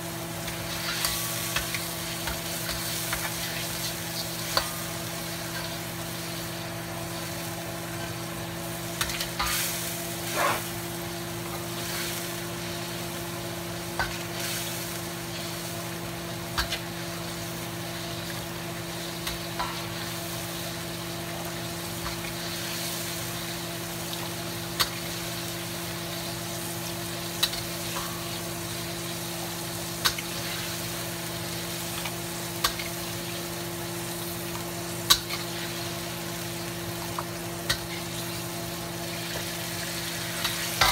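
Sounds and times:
liquid sizzling in a wok: 0:00.0 - 0:40.9
metal ladle scraping a wok: 0:10.2 - 0:10.8.

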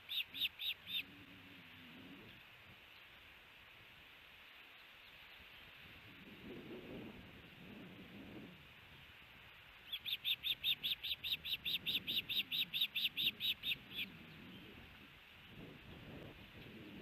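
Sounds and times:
osprey alarm call: 0:00.0 - 0:01.1, 0:09.8 - 0:14.7.

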